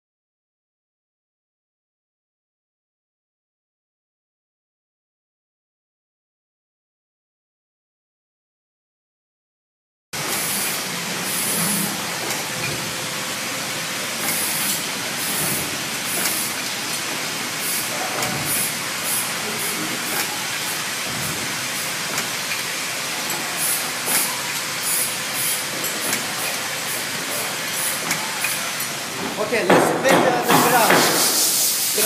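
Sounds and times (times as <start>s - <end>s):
packaging machine running: 10.2s - 31.0s
short high hissing bursts: 30.4s - 32.0s.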